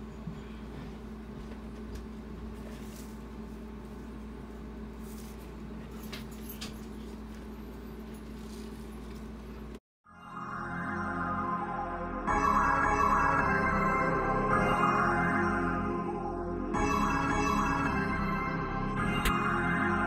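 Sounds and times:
low background hum: 0:00.0 - 0:09.8.

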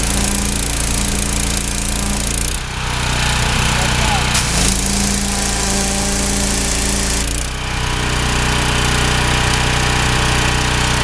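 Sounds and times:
water jet hissing on hide: 0:00.0 - 0:07.6
pressure washer engine running: 0:00.0 - 0:11.0.

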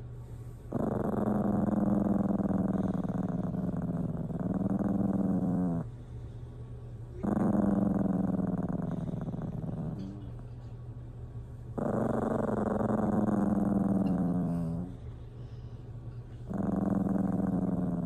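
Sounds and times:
dog growling: 0:00.7 - 0:06.0, 0:07.2 - 0:10.6, 0:11.7 - 0:15.2, 0:16.3 - 0:18.0.

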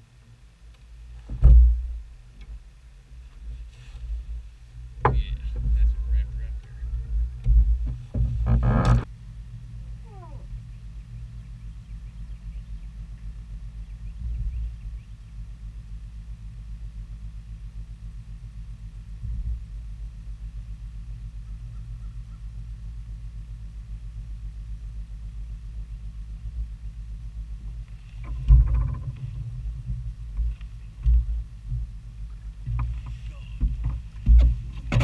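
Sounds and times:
boat hum: 0:00.0 - 0:35.0
heavy thumps on boat: 0:01.2 - 0:02.0, 0:05.0 - 0:06.2, 0:28.3 - 0:35.0.

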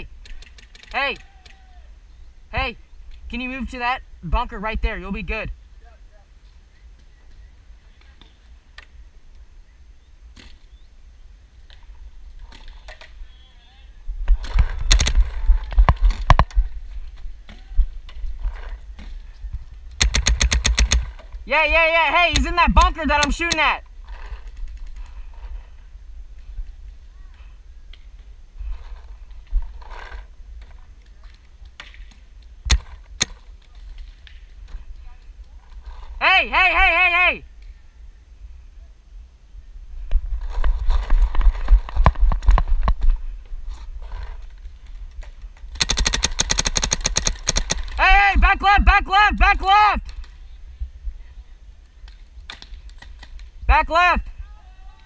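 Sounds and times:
paintball markers firing: 0:14.4 - 0:16.5, 0:19.9 - 0:21.3, 0:22.2 - 0:23.8, 0:45.7 - 0:48.0
gear rattling: 0:20.0 - 0:21.3, 0:45.8 - 0:48.0.

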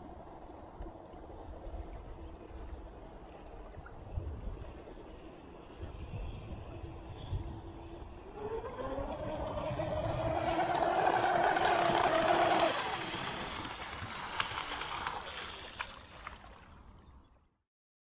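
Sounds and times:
electric motor whining: 0:07.3 - 0:13.2.

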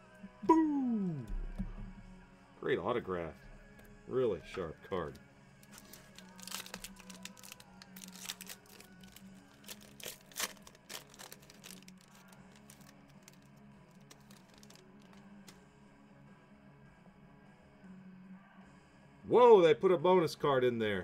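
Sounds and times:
foil wrapper tearing and crinkling: 0:05.6 - 0:15.2.

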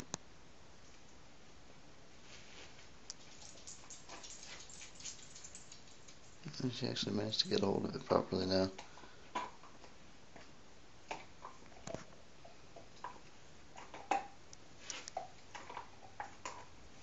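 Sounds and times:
dog gnawing on a bone: 0:13.0 - 0:14.4, 0:15.1 - 0:16.8.

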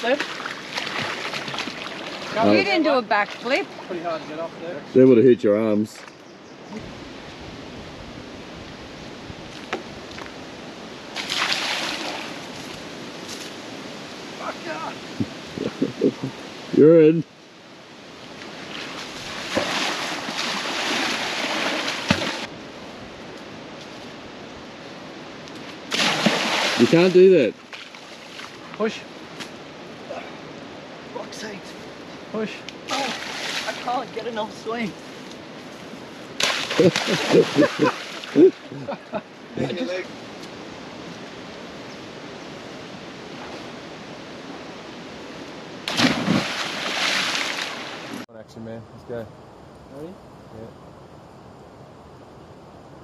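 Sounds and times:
water splashing and sloshing: 0:00.0 - 0:04.4, 0:09.4 - 0:16.5, 0:18.1 - 0:22.8, 0:25.4 - 0:31.1, 0:31.7 - 0:39.4, 0:43.3 - 0:48.2.

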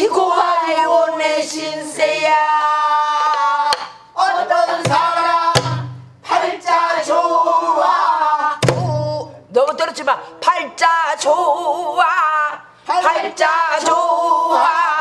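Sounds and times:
barrel drum strokes: 0:04.8 - 0:06.2.

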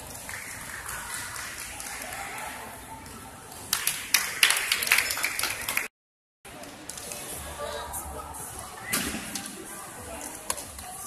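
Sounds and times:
crowd murmur: 0:00.0 - 0:05.8, 0:06.5 - 0:11.0
crowd applause: 0:03.7 - 0:05.9.

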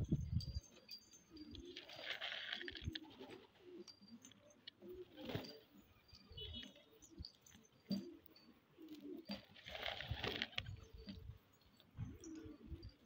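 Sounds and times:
pigeons cooing: 0:01.3 - 0:13.0
wings flapping: 0:09.4 - 0:10.7.

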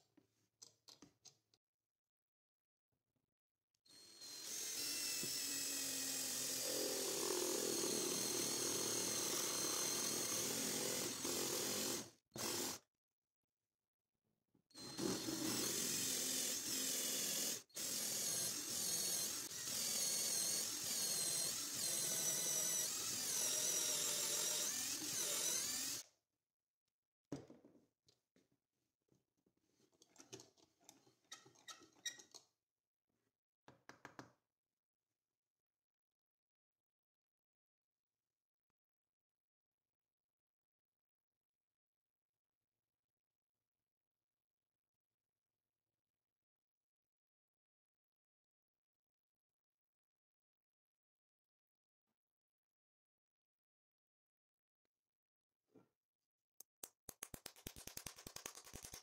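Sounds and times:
power tool whining: 0:14.8 - 0:26.0.

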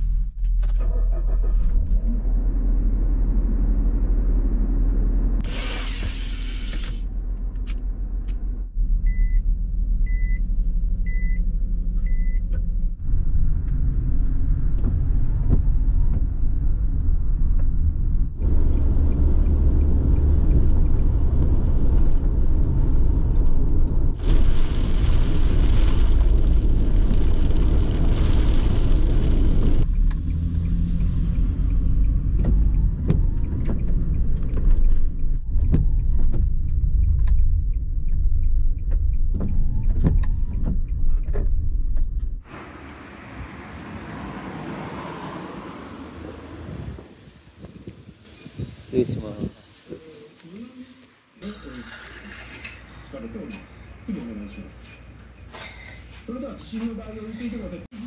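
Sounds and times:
rushing hiss: 0:05.4 - 0:07.0, 0:42.5 - 0:50.3.

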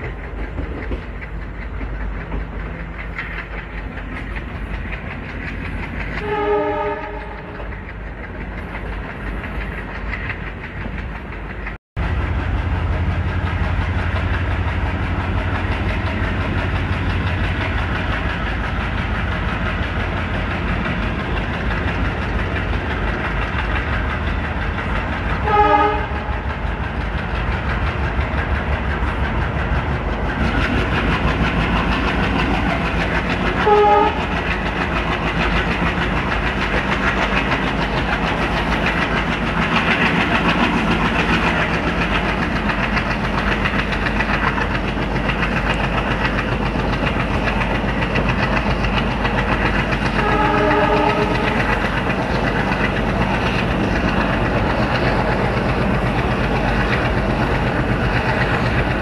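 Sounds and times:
diesel locomotive engine chugging: 0:00.0 - 0:59.0
train wheels clattering over rail joints: 0:00.0 - 0:59.0
locomotive horn short blasts: 0:06.2 - 0:07.4, 0:25.4 - 0:26.3, 0:33.6 - 0:34.2, 0:50.2 - 0:51.5.

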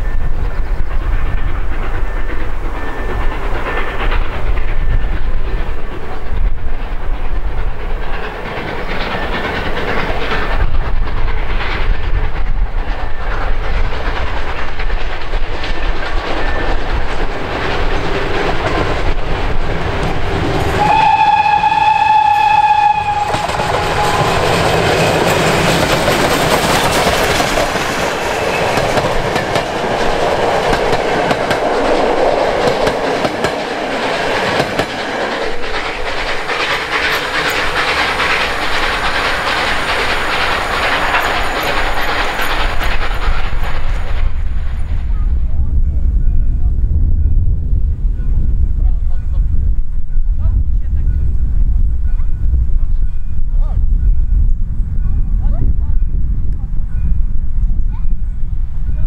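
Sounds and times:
steam locomotive working: 0:00.0 - 0:59.0
steam whistle: 0:20.8 - 0:24.8.

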